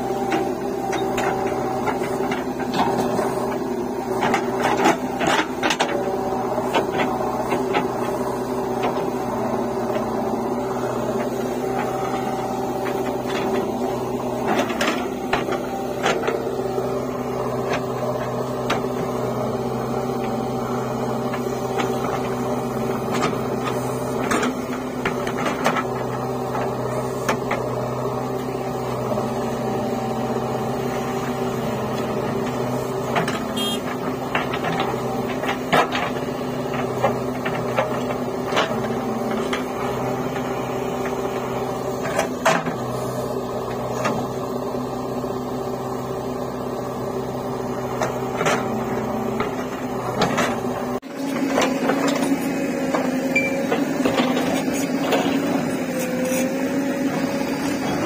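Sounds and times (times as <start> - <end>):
diesel engine running under load: 0.0 - 58.0.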